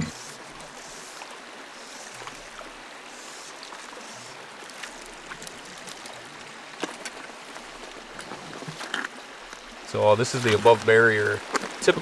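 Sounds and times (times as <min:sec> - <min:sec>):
light water splashes: 0:00.0 - 0:12.0
stream flowing over rocks: 0:00.0 - 0:12.0.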